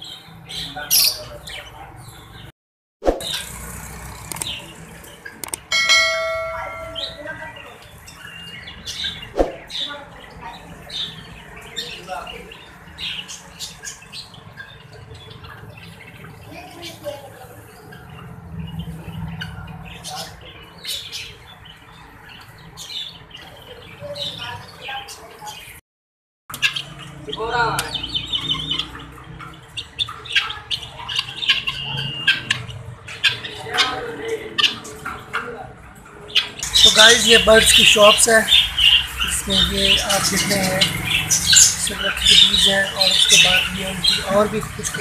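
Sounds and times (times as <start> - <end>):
birds chirping and squawking: 0.0 - 2.5, 3.2 - 25.8, 26.5 - 45.0
clicks: 4.3 - 4.5, 5.4 - 5.8
bell-like chime: 5.7 - 7.3.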